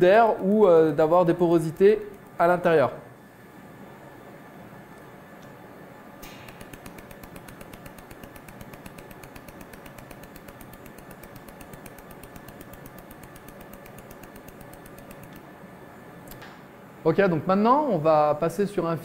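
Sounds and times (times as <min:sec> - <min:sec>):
laser welder pulses ticking: 0:00.4 - 0:02.8, 0:06.2 - 0:15.6.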